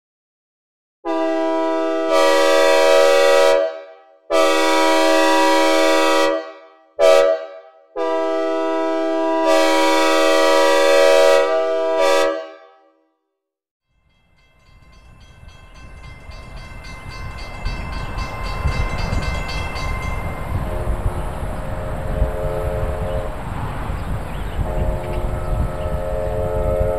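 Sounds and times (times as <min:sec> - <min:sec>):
train air horn blasts: 0:01.1 - 0:13.0, 0:20.5 - 0:23.8, 0:24.6 - 0:26.9
approaching train rumble: 0:14.1 - 0:26.9.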